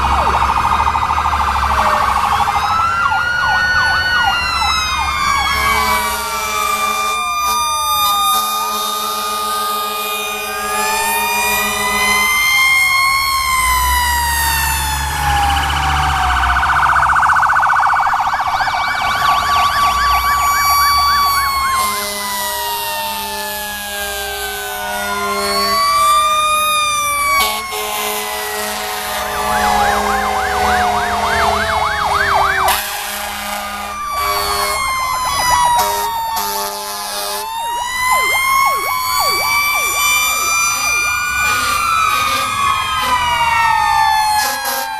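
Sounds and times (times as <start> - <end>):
diesel engines running: 0.0 - 44.9
fire truck sirens wailing: 0.0 - 44.9
horn blasts: 5.5 - 7.7, 21.7 - 25.8, 27.4 - 35.0, 35.7 - 37.6.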